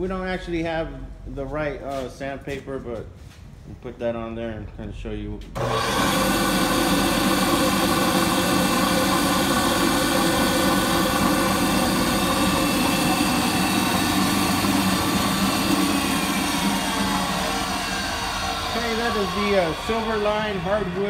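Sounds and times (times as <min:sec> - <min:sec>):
floor sander mechanical hum: 0:05.6 - 0:21.0.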